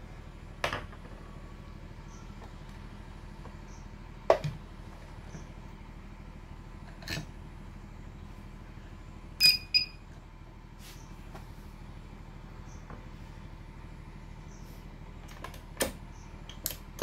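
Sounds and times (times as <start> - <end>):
low mains hum: 0.0 - 17.0
short high-pitched buzzer beeps: 9.4 - 10.0.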